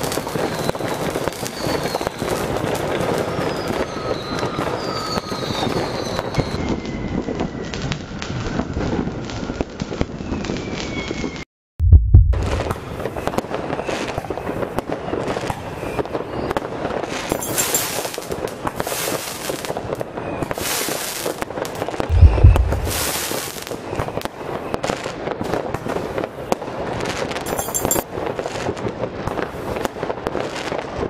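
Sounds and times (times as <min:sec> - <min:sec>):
firework fountain crackling and hissing: 0:00.0 - 0:11.4, 0:12.5 - 0:31.0
loud bang: 0:11.8 - 0:12.9, 0:22.1 - 0:23.3.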